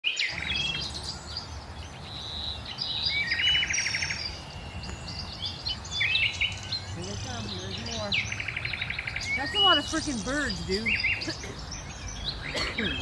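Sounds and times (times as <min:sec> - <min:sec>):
flock of songbirds chirping: 0:00.0 - 0:13.0.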